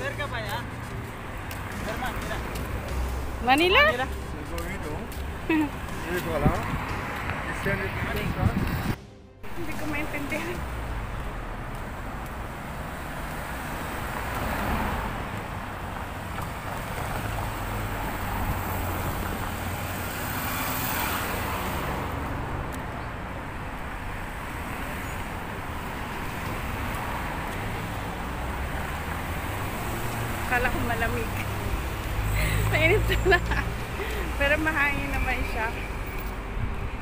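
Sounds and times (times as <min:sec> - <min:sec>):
cars passing: 0:00.0 - 0:37.0
wind buffeting microphone: 0:06.3 - 0:09.0.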